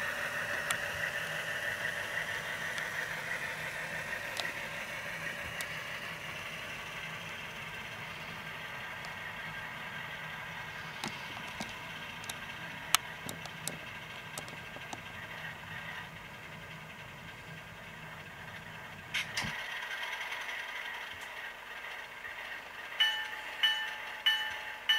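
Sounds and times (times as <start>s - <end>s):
model diesel engine drone: 0.0s - 24.9s
sharp clicks: 11.0s - 15.1s.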